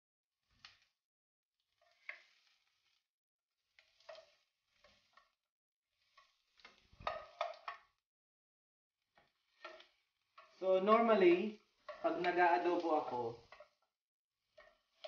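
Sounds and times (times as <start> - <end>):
plastic spoon scraping pot: 1.7 - 8.0, 9.0 - 10.6, 14.4 - 15.0.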